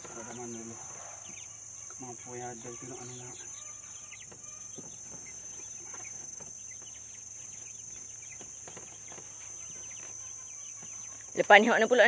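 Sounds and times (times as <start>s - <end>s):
chickens clucking: 0.0s - 12.0s
high-pitched hiss: 0.0s - 12.0s.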